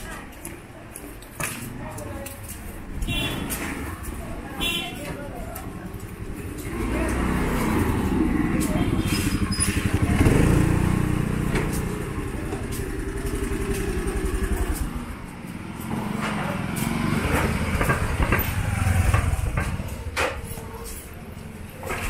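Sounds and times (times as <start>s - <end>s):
scooter passing: 0.0s - 22.0s
motorcycle passing: 5.7s - 22.0s.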